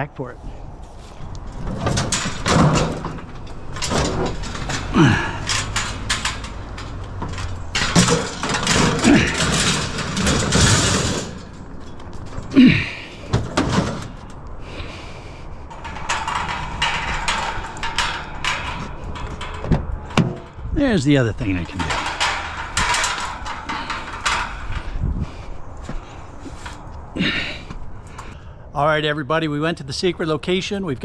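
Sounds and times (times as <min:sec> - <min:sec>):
metal racks clanking and scraping: 0:00.4 - 0:28.4.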